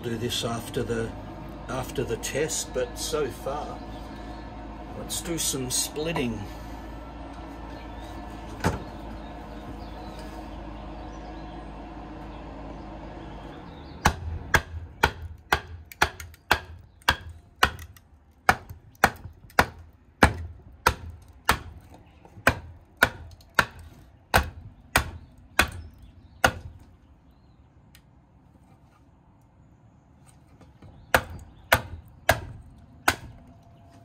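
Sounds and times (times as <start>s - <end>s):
steady low hum: 0.0s - 34.0s
wood splitting: 14.0s - 27.0s, 30.2s - 34.0s.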